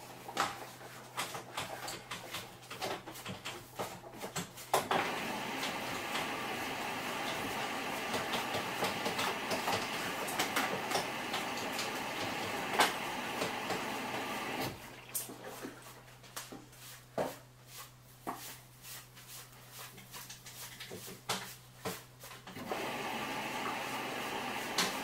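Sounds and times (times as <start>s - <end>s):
water rushing into washing machine: 4.8s - 15.9s, 22.6s - 25.0s.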